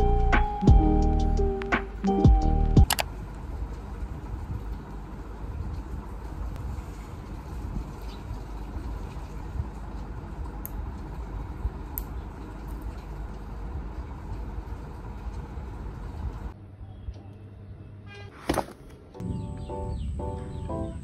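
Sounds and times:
soft music with sustained notes: 0:00.0 - 0:02.9, 0:19.2 - 0:21.0.

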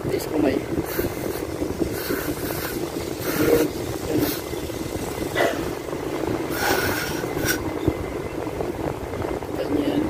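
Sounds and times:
aerosol spray hissing: 0:00.9 - 0:04.5, 0:06.5 - 0:07.6.

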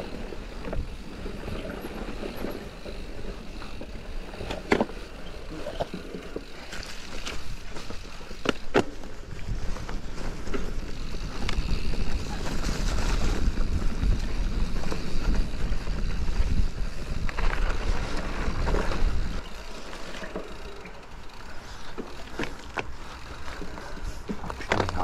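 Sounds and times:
tyre and trail noise: 0:00.0 - 0:25.0
wind buffeting microphone: 0:09.3 - 0:19.5.

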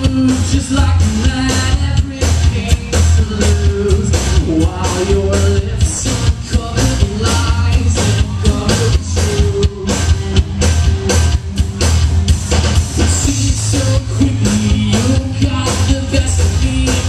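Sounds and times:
person singing: 0:00.0 - 0:10.4, 0:13.0 - 0:17.0
drum kit beat: 0:00.0 - 0:17.0
electric guitars: 0:00.0 - 0:17.0.

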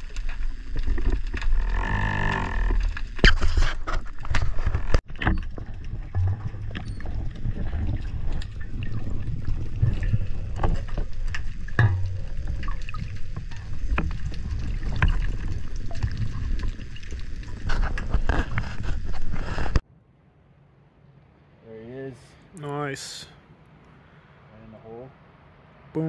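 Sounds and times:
muffled underwater rumble: 0:00.0 - 0:19.8.

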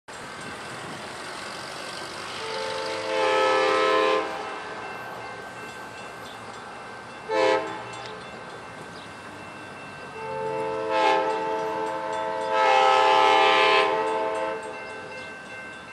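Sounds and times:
locomotive air horn blasts: 0:02.3 - 0:04.8, 0:07.3 - 0:07.9, 0:10.2 - 0:14.7.

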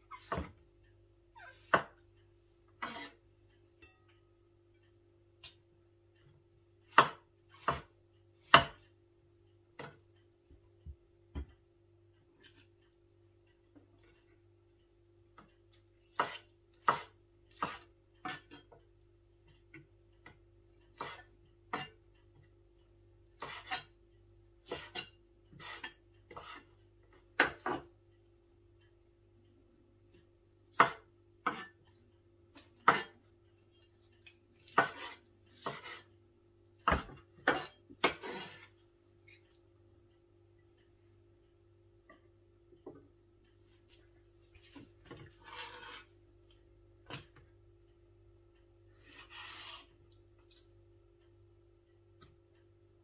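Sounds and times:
knife chopping on wooden board: 0:06.9 - 0:08.8, 0:16.2 - 0:18.5, 0:30.8 - 0:31.7, 0:34.7 - 0:36.0.

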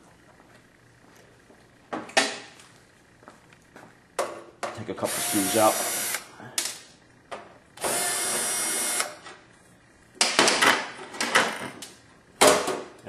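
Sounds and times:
power screwdriver running: 0:05.1 - 0:06.3, 0:07.8 - 0:09.2.

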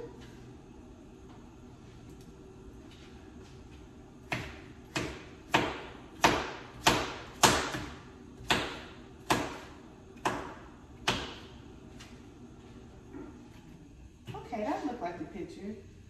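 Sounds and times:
knife chopping on cutting board: 0:04.2 - 0:11.6.

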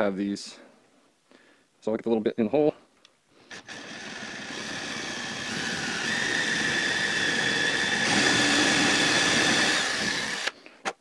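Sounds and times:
cordless drill motor whining: 0:03.5 - 0:10.6
drill bit cutting wood: 0:03.5 - 0:10.6.

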